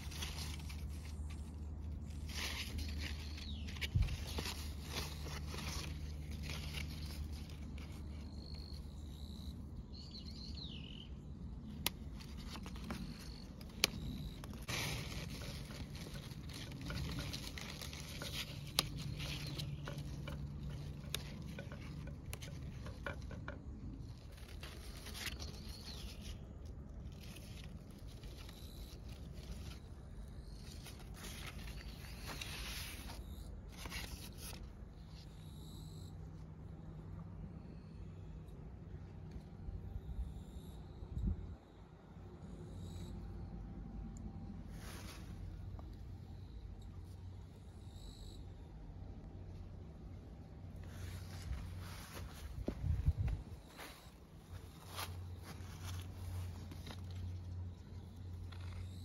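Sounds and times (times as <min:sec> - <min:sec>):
leaves rustling: 0:00.0 - 0:09.3, 0:11.7 - 0:35.2, 0:44.6 - 0:46.1, 0:50.6 - 0:59.0.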